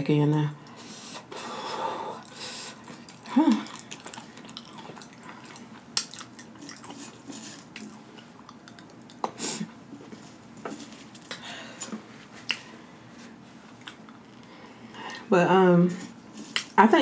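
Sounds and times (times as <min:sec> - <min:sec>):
person chewing chips: 0:02.2 - 0:09.5
wet lip smacking: 0:02.2 - 0:09.5.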